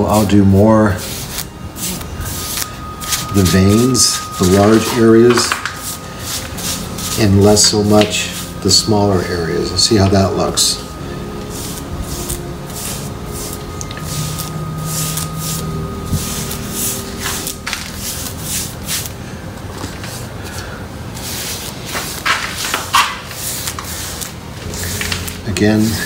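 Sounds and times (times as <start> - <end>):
paintbrush scrubbing cement: 0.1 - 8.8, 11.5 - 19.1, 21.2 - 25.2.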